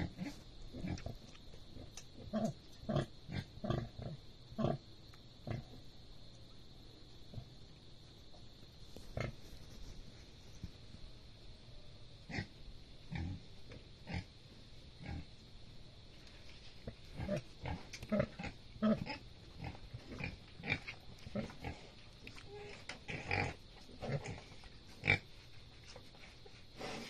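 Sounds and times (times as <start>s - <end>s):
pigs grunting and squeaking: 17.1s - 25.3s.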